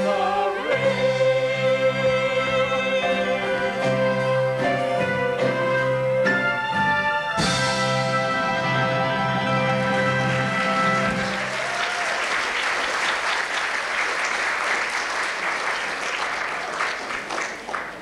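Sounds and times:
audience applauding: 9.9 - 18.0.

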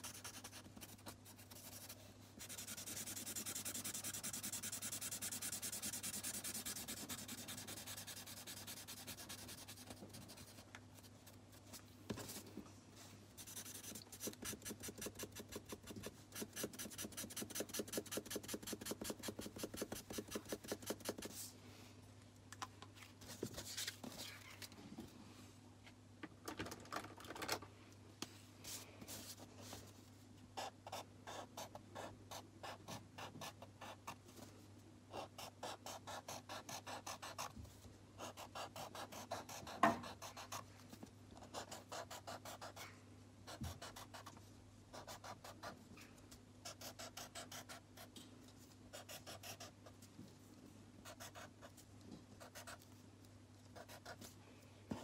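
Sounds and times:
marker scribbling on card: 0.0 - 10.6, 13.4 - 21.3, 35.2 - 37.5, 38.2 - 40.6, 41.4 - 42.9, 48.9 - 49.8, 52.4 - 52.8, 53.8 - 54.3
faint steady hum: 0.0 - 55.0.

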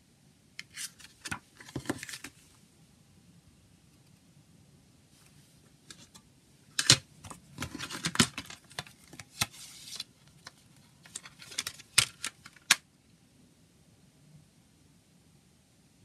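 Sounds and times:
paper rustling: 0.6 - 2.4, 6.8 - 12.8
plastic case clicking: 6.8 - 9.5.

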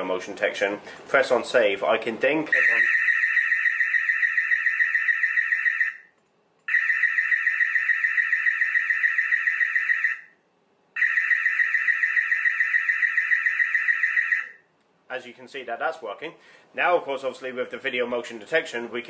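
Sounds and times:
high warbling alarm siren: 2.5 - 6.1, 6.7 - 10.4, 11.0 - 14.6.

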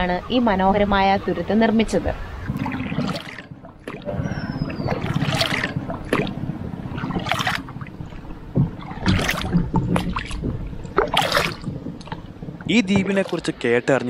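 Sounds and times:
water washing along hull: 0.0 - 14.0
paddle splashing water: 2.2 - 13.8
water dripping off paddle: 2.4 - 13.7.

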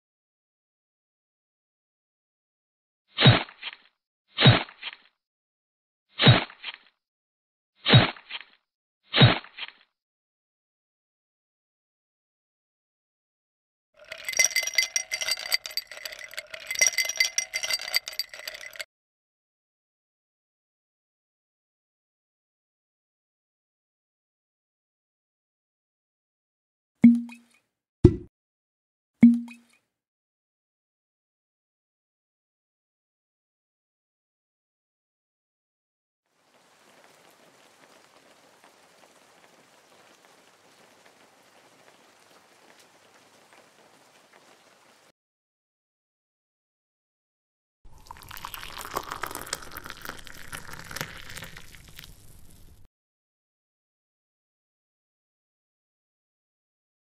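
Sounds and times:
ice cubes clinking in metal bowl: 14.0 - 18.8, 48.0 - 52.1
steady ringing tone: 14.0 - 18.8.

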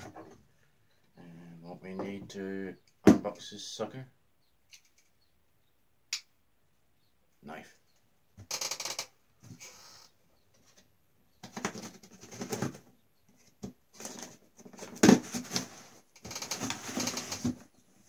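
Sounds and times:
cardboard flaps rustling and scraping: 13.6 - 17.8.

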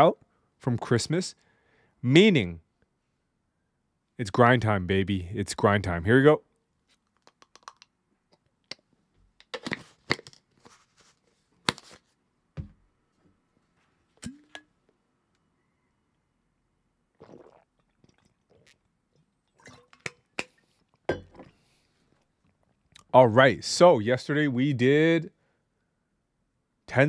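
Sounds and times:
mouth smacking and chewing: 17.2 - 21.0
swallowing: 17.2 - 21.6.

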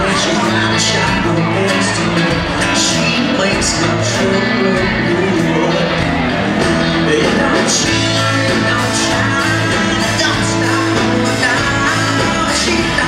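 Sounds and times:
country rock band playing: 0.0 - 13.0
man singing: 0.0 - 13.0.

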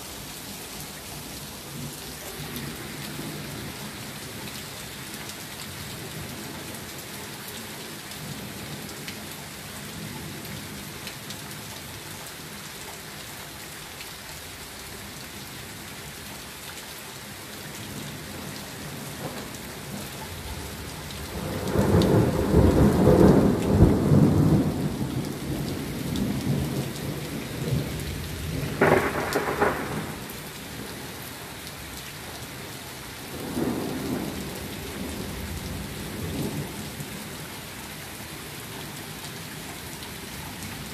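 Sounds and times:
steady pouring rain: 0.0 - 40.9
thunder rumbling: 20.7 - 30.4
sharp thunder clap: 28.7 - 30.3.

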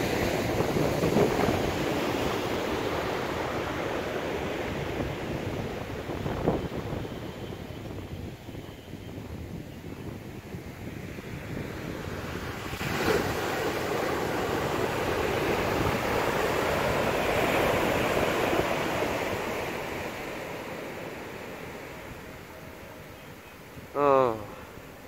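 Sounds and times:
ocean wave breaking: 0.0 - 6.3, 11.5 - 23.1.

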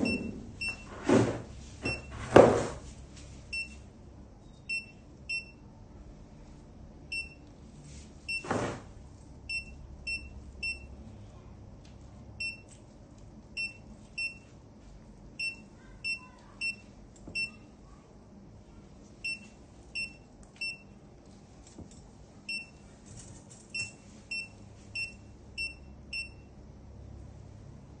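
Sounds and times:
patient monitor beeps: 0.0 - 1.0, 1.8 - 2.2, 3.5 - 3.8, 4.4 - 5.6, 7.1 - 7.5, 8.3 - 8.8, 9.5 - 11.0, 12.4 - 12.8, 13.6 - 14.5, 15.4 - 17.7, 19.2 - 21.0, 22.5 - 22.8, 23.7 - 26.6
low steady hum: 2.8 - 28.0.

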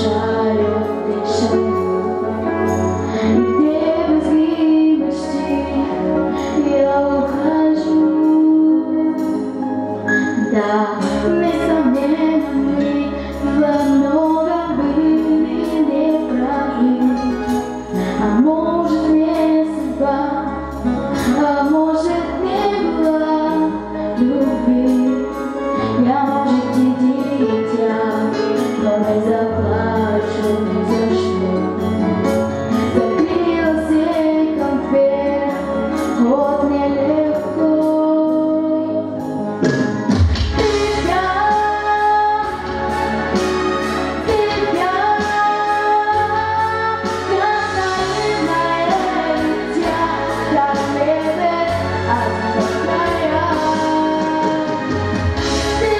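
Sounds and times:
backing track with steady beat: 0.0 - 55.9
woman singing into microphone: 0.0 - 55.9.

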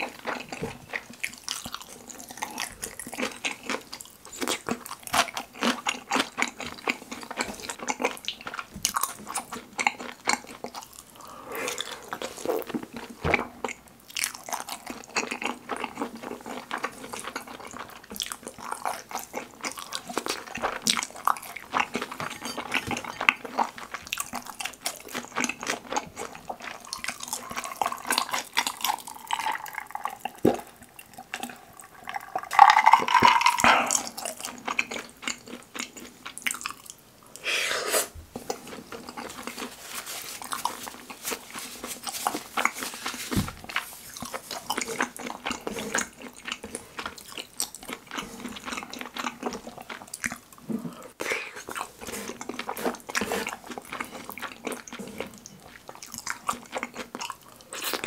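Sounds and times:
close-up chewing: 0.0 - 37.5, 38.3 - 58.0
drinking from glass with ice: 31.8 - 34.3.

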